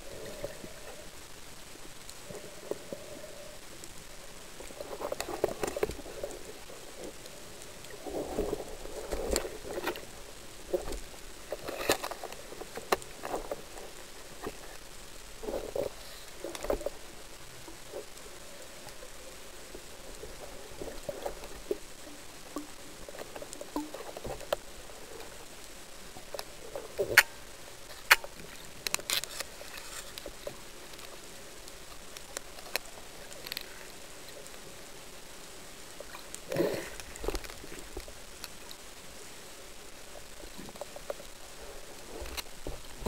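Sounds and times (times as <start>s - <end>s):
underwater hiss: 36.0s - 38.0s.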